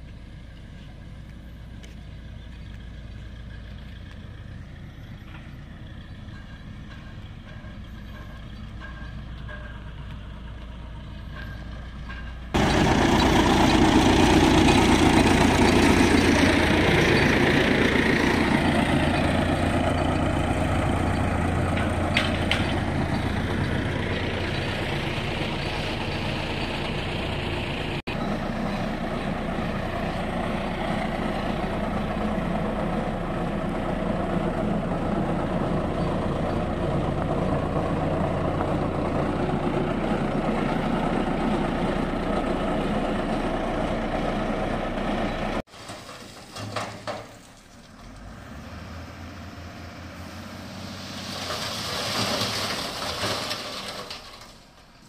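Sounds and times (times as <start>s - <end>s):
road roller diesel engine: 0.0s - 55.0s.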